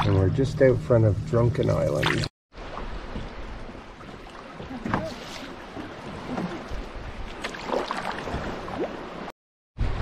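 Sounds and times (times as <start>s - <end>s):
water gurgling around hull: 0.0s - 9.3s
paddle strokes in water: 2.6s - 9.3s.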